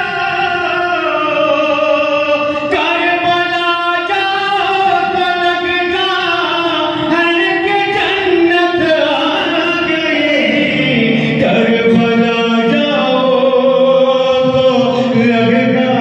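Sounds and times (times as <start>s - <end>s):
man singing devotional chant: 0.0s - 16.0s.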